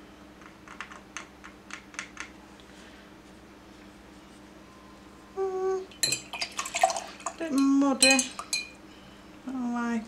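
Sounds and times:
person humming: 0:05.2 - 0:05.9.

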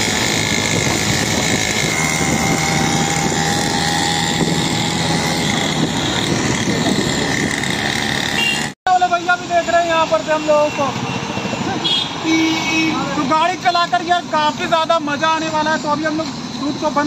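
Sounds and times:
wind over microphone: 0:00.0 - 0:08.0
motorbike engines on road: 0:00.0 - 0:17.0.

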